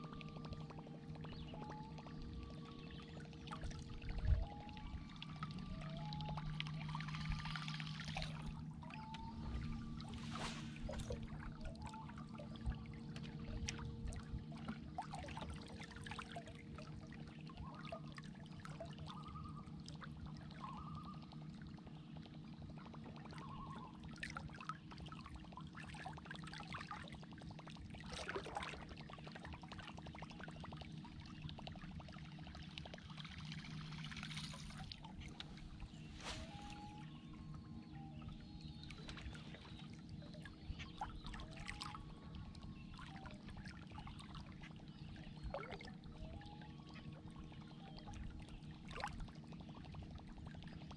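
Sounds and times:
steady low hum: 0:00.0 - 0:50.9
water lapping against boat hull: 0:00.0 - 0:50.9
faint splashy ticks: 0:12.7 - 0:14.8.

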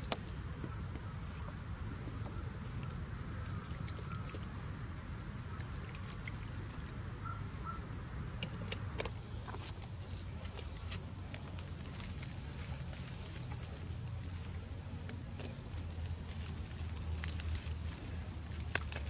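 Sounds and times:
dry brush crackling: 0:09.5 - 0:19.0.

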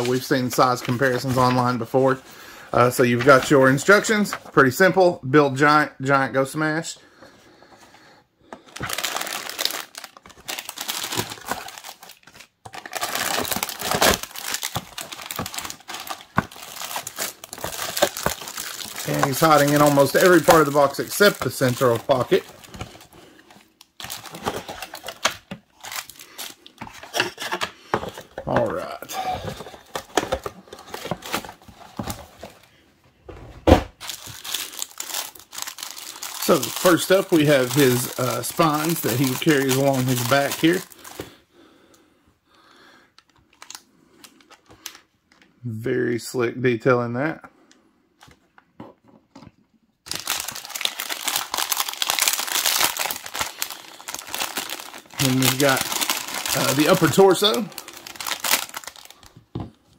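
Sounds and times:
plastic bags crinkling: 0:00.0 - 0:04.7, 0:08.5 - 0:32.6, 0:34.0 - 0:41.4, 0:50.1 - 0:59.5.

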